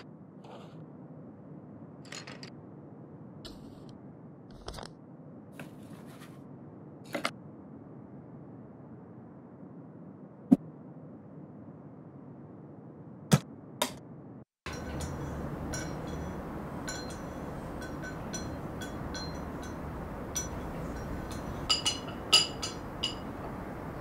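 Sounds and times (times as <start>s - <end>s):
low room hum: 0.0s - 24.0s
porcelain teaware clinking: 14.7s - 23.6s.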